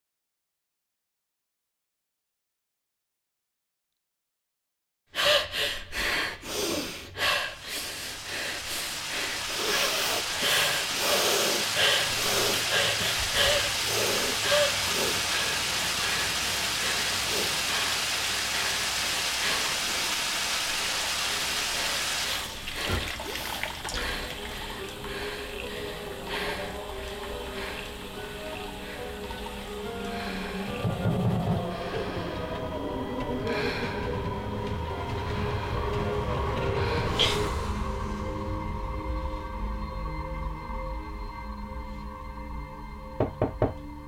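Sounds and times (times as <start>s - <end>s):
faucet running into sink: 8.2s - 30.1s.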